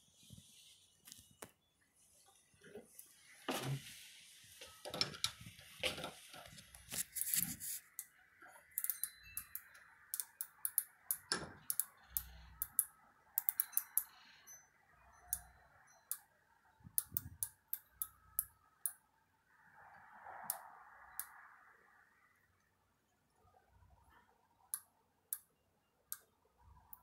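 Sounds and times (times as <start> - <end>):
micrometer ratchet clicking: 8.7 - 14.2.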